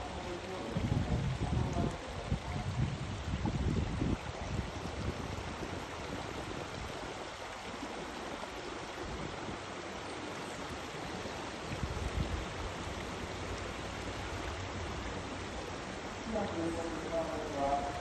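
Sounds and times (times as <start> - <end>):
stream rushing over rocks: 0.0 - 18.0
wind buffeting microphone: 0.2 - 7.5.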